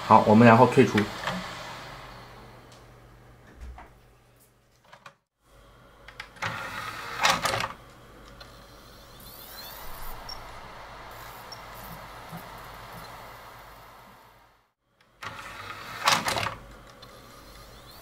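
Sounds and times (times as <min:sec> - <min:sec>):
disc spinning whir: 0:00.0 - 0:03.2, 0:05.6 - 0:18.0
disc drive clicks and clatter: 0:00.8 - 0:02.0, 0:06.0 - 0:10.6, 0:11.2 - 0:13.4, 0:15.0 - 0:18.0.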